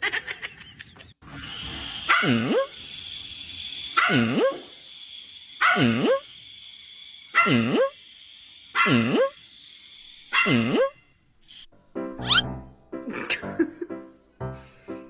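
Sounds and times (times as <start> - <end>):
small puppy barking: 2.1 - 2.7, 4.0 - 4.6, 5.6 - 6.2, 7.4 - 7.9, 8.8 - 9.3, 10.3 - 10.9, 12.2 - 12.4.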